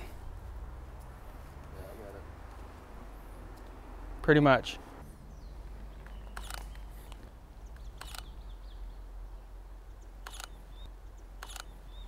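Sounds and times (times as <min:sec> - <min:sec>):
camera shutter clicks: 0:06.3 - 0:07.2, 0:07.9 - 0:08.3, 0:10.2 - 0:10.6, 0:11.4 - 0:11.8.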